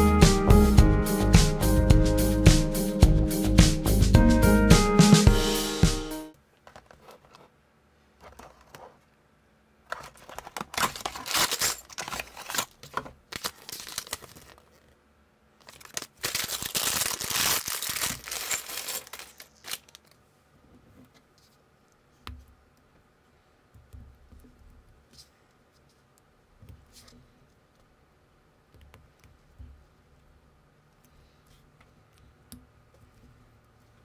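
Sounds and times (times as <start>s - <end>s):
cardboard packaging tearing and rustling: 9.9s - 14.9s, 15.6s - 20.2s.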